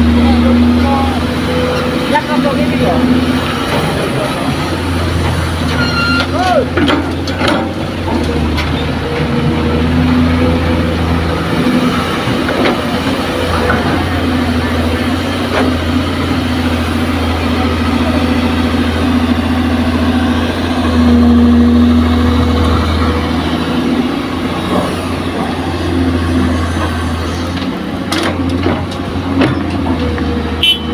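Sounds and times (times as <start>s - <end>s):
diesel truck engine running: 0.0s - 30.9s.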